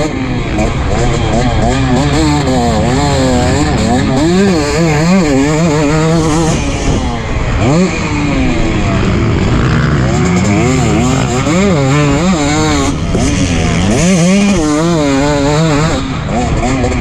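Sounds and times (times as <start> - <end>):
two-stroke engine revving hard: 0.0 - 17.0.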